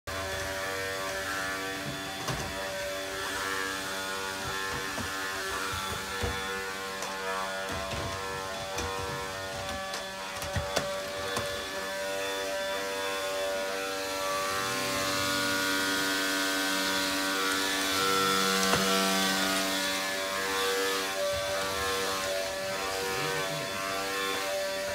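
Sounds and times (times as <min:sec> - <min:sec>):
vacuum cleaner running: 0:00.1 - 0:24.9.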